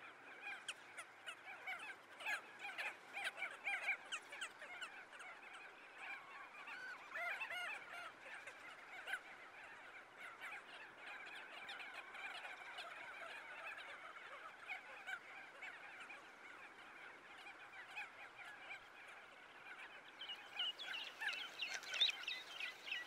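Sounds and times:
birds calling: 20.0 - 23.0.

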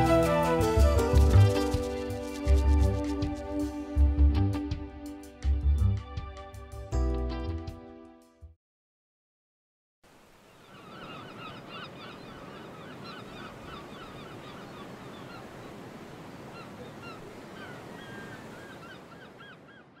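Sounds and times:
steady rushing background: 0.2 - 3.8.

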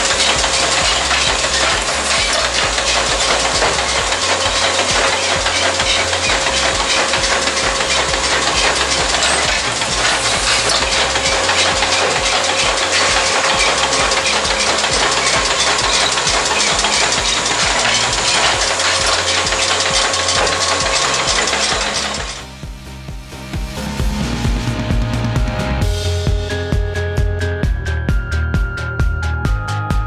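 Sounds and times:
machine clattering: 0.0 - 22.4.

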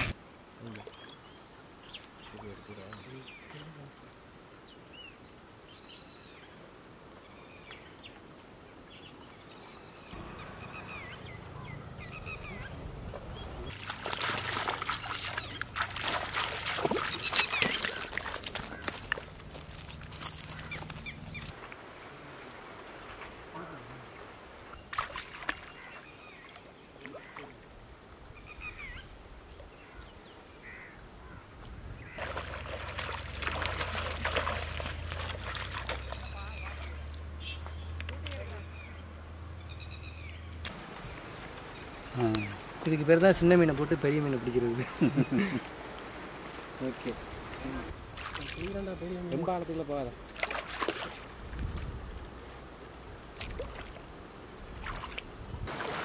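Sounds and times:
bird chirps: 8.9 - 13.7, 15.0 - 15.6, 39.6 - 42.6
water sloshing and trickling: 10.2 - 27.7, 32.1 - 38.8, 40.6 - 56.0
wind on microphone: 51.4 - 52.4.

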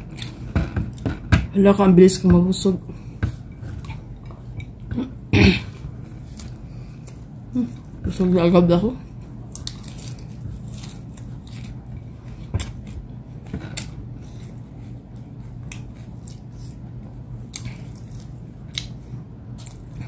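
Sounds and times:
steady low hum: 0.0 - 20.0
chewing: 9.2 - 16.8, 17.4 - 20.0
crisp chicken skin crackling: 9.4 - 11.9.

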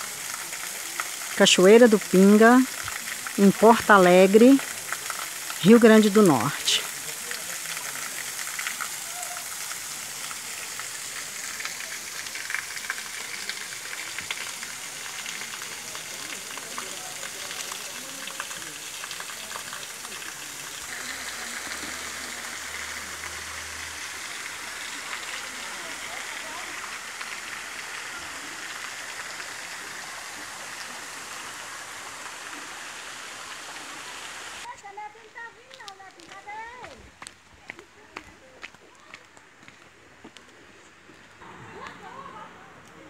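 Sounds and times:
waterfall splashing into pool: 0.0 - 34.8.

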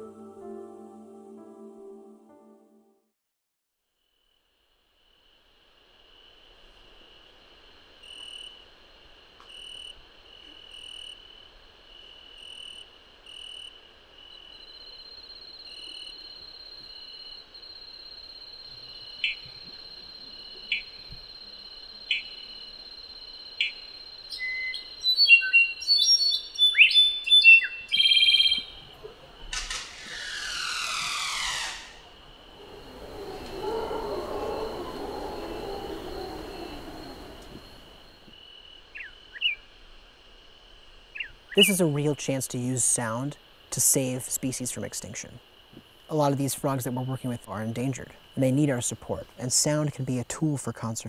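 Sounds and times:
steady high insect tone: 4.0 - 51.0
tree frog sharp calls: 18.6 - 39.8, 41.0 - 50.9
varied chirps and whistles: 23.6 - 29.0, 29.7 - 38.3.

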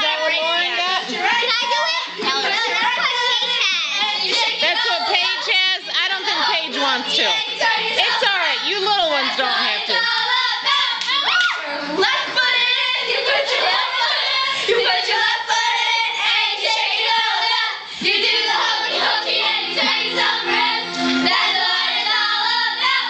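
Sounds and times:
girls singing together: 0.0 - 23.0
shouts: 10.7 - 11.7
hand claps: 11.0 - 11.6.

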